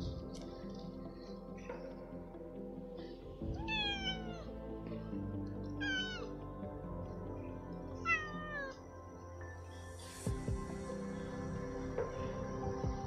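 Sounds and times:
background music: 0.0s - 13.0s
cat meowing: 3.6s - 4.5s, 8.1s - 8.8s.

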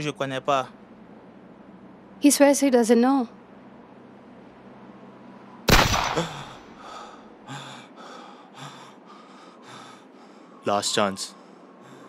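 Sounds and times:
pistol shot: 5.7s - 6.7s
man gasping breaths: 6.4s - 10.6s.

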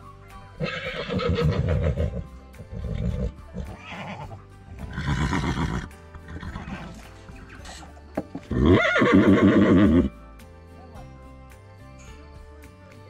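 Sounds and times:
background music: 0.0s - 13.0s
horses whinnying: 0.6s - 10.2s.

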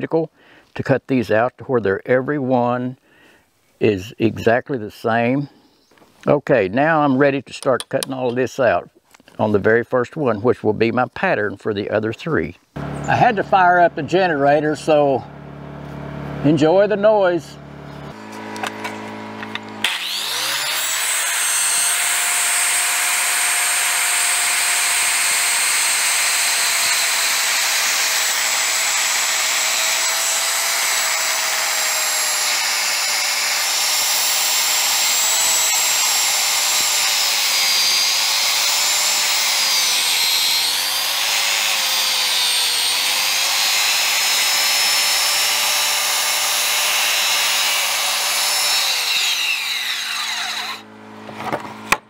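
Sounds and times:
circular saw cutting wood: 12.8s - 52.0s.

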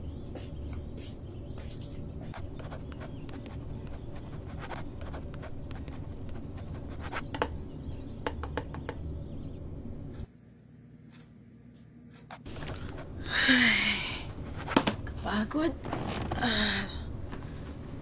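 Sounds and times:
low steady hum: 0.0s - 18.0s
pen scratching on paper: 2.3s - 7.5s.

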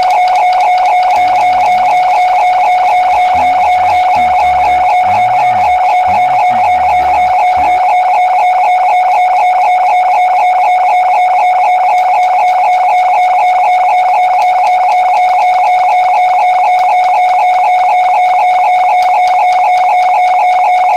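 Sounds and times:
pulsing high tone: 0.0s - 9.8s.

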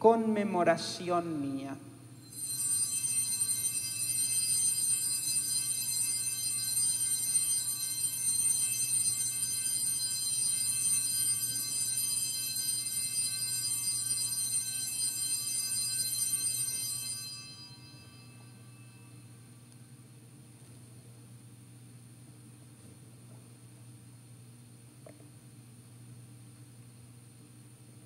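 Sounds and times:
small altar bells ringing: 2.2s - 19.5s.

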